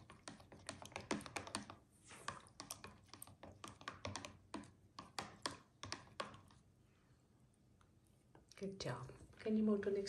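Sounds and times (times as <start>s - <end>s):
plastic spoon knocking plastic tub: 2.8s - 6.5s.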